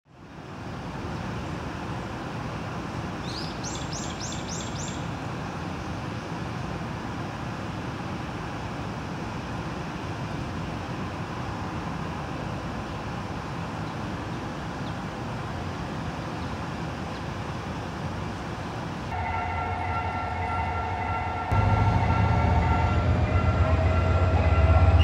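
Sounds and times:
steady rushing background noise: 0.1s - 19.2s
bird chirping: 3.2s - 5.1s.

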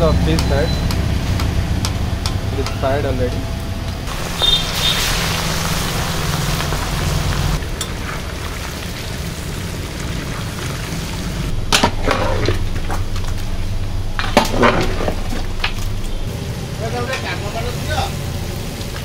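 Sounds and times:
hissing sizzle of deep-frying: 4.0s - 11.6s, 15.8s - 19.0s.

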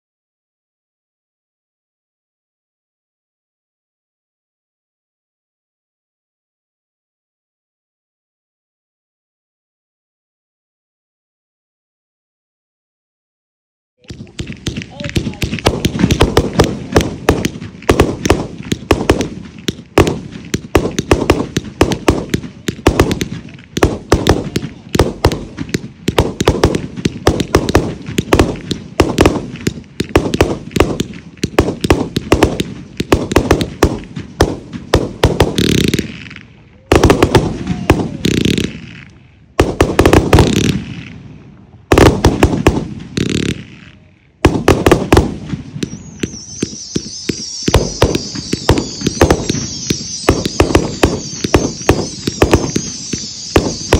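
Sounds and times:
firework launch thumps and bursts: 14.0s - 41.2s, 41.9s - 43.8s, 44.4s - 53.9s.

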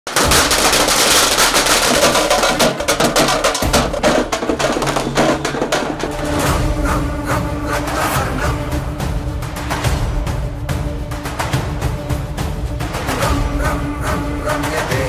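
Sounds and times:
firecrackers cracking: 0.1s - 6.5s
music: 0.1s - 15.0s.

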